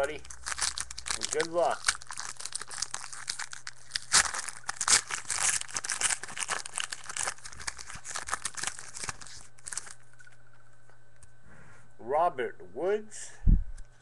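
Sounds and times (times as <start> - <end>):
foil wrapper crinkling and tearing: 0.0 - 10.6.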